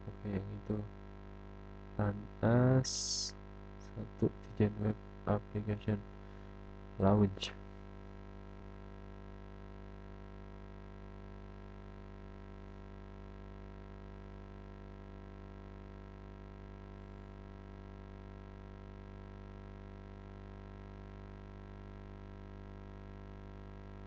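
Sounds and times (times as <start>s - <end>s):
electrical hum: 0.0s - 24.0s
faint hiss: 2.0s - 6.0s.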